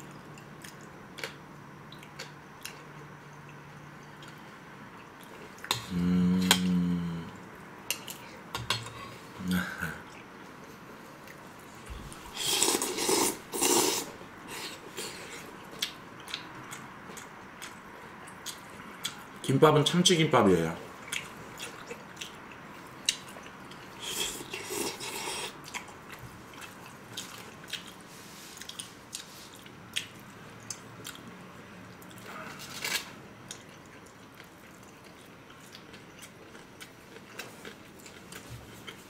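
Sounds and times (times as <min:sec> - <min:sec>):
people chewing: 0:21.0 - 0:39.0.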